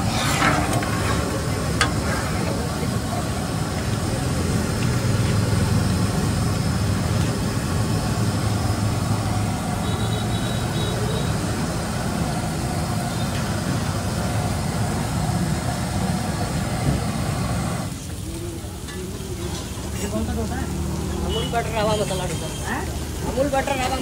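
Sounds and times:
faint voices: 0.0 - 7.0
street food stall rumble and hiss: 0.0 - 24.0.

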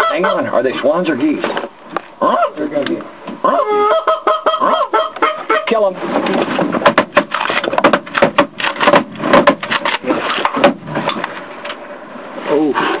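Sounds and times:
camera knocking against wood: 6.8 - 10.8.

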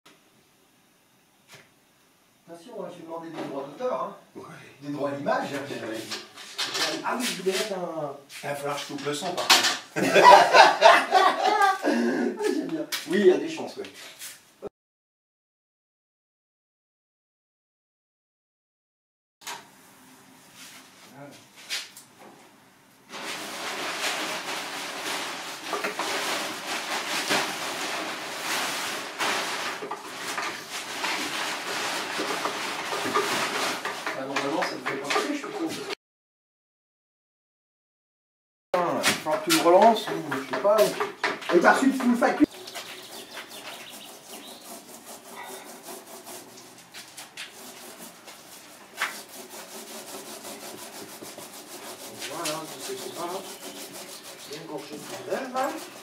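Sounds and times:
sheet material crinkling: 23.1 - 34.6
hand rubbing fabric: 42.6 - 56.0.

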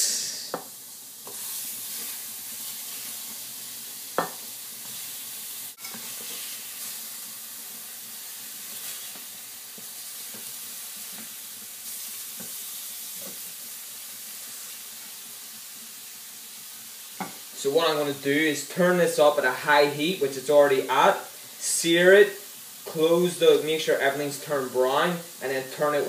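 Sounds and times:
burger patties sizzling in a pan: 0.0 - 26.0
wooden spatula scraping a pan: 1.2 - 3.3, 5.8 - 7.0.

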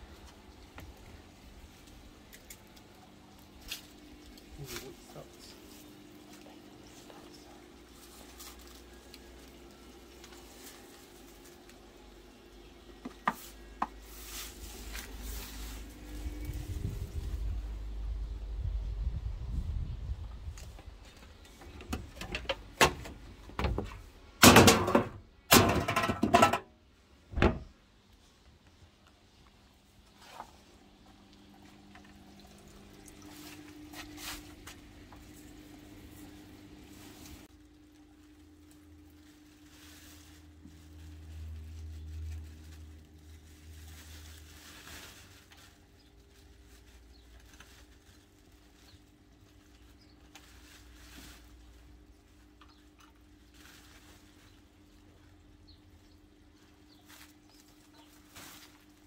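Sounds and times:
garden debris rustling into bag: 0.0 - 17.8, 29.8 - 59.0
bottles and cans clattering into bin: 22.0 - 26.7.

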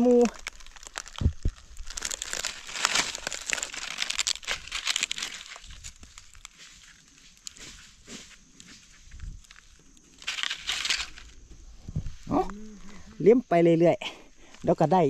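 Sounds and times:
dry leaves crackling: 0.0 - 11.4.

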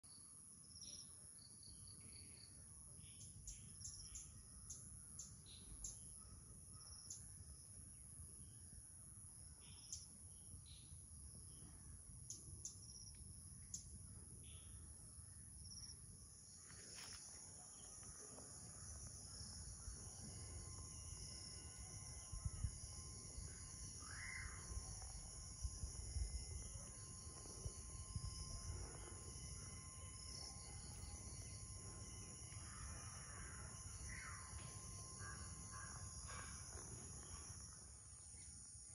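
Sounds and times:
insects buzzing: 0.6 - 38.9
bird chirps: 0.9 - 7.4.

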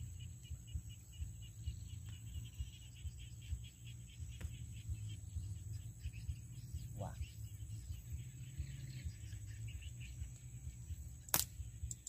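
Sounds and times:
crickets chirping: 0.0 - 12.0
low rumble: 0.0 - 12.0.

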